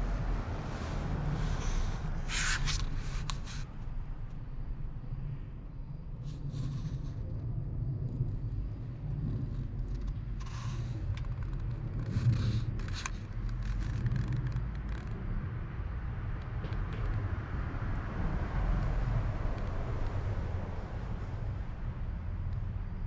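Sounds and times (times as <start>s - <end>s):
crackles and pops: 8.1s - 15.3s.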